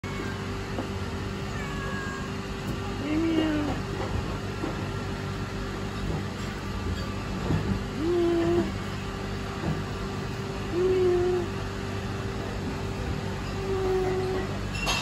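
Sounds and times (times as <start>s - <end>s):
steady machine hum: 0.0s - 15.0s
cat meowing: 1.5s - 2.4s.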